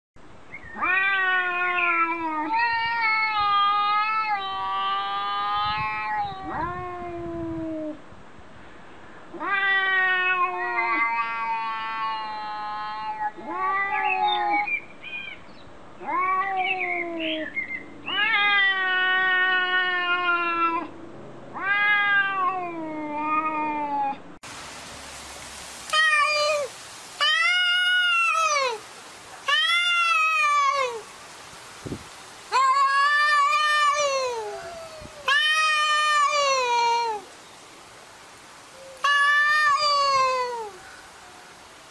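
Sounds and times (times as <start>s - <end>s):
cats yowling: 0.8s - 7.2s, 9.3s - 14.7s, 16.0s - 17.4s, 18.1s - 20.9s, 21.5s - 24.2s, 25.9s - 31.1s, 32.5s - 37.3s, 38.7s - 41.4s.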